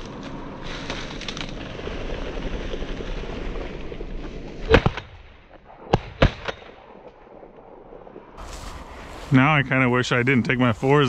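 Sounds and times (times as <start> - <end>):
shotgun shots: 4.7 - 6.9
legs rustling through dry grass: 8.4 - 11.0.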